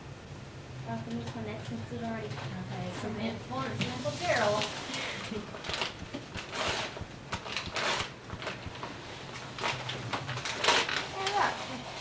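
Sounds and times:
wrapping paper crinkling and tearing: 0:04.0 - 0:12.0.

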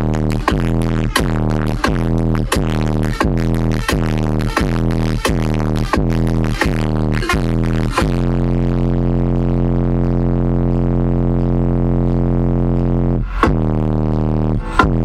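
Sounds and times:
subwoofer playing bass-heavy music: 0:00.0 - 0:15.0.

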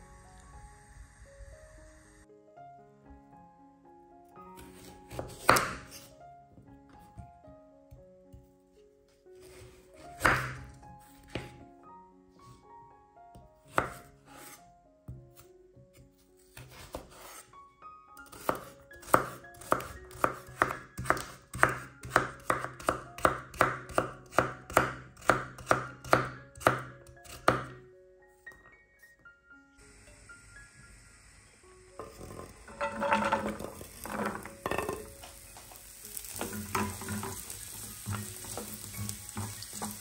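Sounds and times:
soft background music: 0:00.0 - 0:40.0
knife chopping on wooden board: 0:04.6 - 0:06.1, 0:10.2 - 0:10.6, 0:13.7 - 0:14.6, 0:18.3 - 0:27.7.

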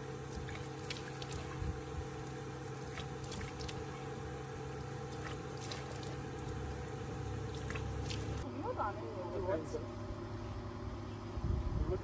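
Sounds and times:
tap water running: 0:00.0 - 0:08.4
steady low hum: 0:00.0 - 0:12.0
water splashing on face: 0:00.2 - 0:04.2, 0:05.0 - 0:08.4.

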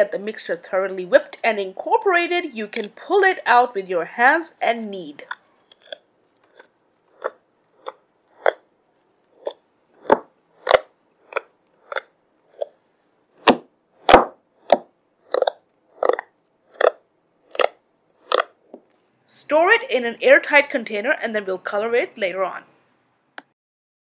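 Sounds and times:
slime squishing by hand: 0:05.2 - 0:19.0.

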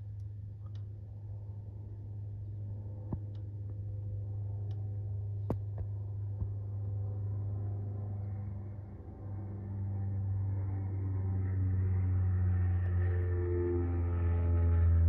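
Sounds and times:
propeller plane droning overhead: 0:00.0 - 0:15.0.

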